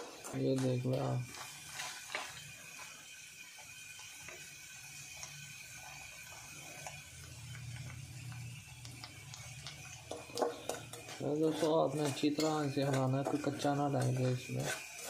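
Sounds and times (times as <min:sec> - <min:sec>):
metal spoon scraping pan: 0:10.1 - 0:15.0.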